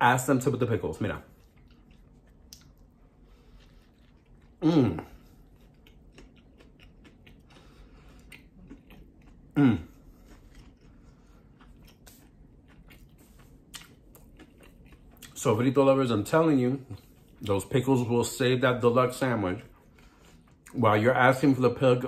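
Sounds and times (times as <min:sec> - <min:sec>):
man chewing crispy food: 0:00.4 - 0:18.1, 0:18.8 - 0:20.9
man humming mmm: 0:04.6 - 0:05.2, 0:09.5 - 0:10.0.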